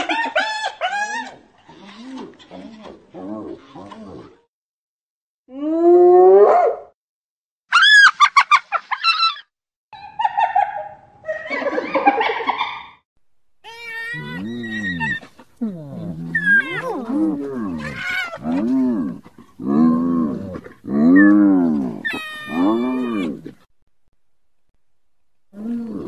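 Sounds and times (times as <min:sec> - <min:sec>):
hyena calling: 0:13.6 - 0:23.6.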